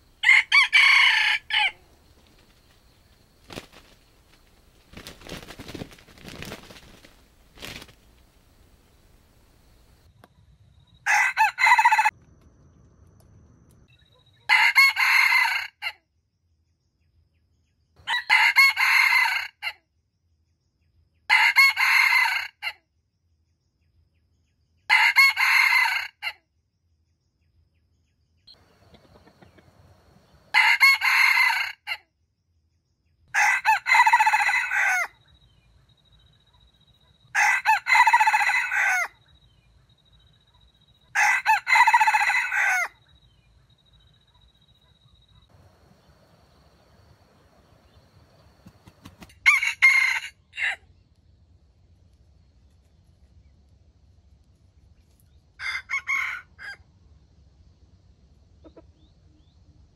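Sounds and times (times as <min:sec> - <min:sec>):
rooster crowing: 0:00.2 - 0:01.9, 0:11.0 - 0:12.2, 0:14.5 - 0:15.9, 0:18.0 - 0:19.8, 0:21.3 - 0:22.7, 0:24.9 - 0:26.4, 0:28.6 - 0:32.0, 0:33.3 - 0:35.2, 0:37.3 - 0:39.2, 0:41.1 - 0:43.0, 0:48.7 - 0:50.8, 0:55.6 - 0:56.8.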